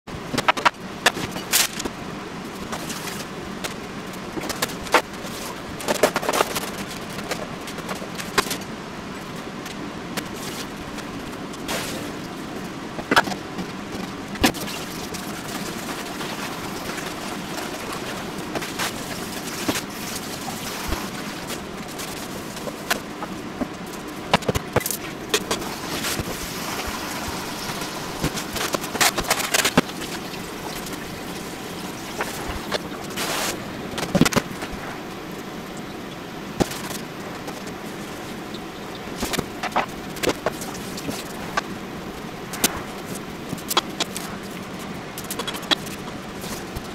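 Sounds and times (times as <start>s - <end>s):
steady background hum: 0.1s - 46.9s.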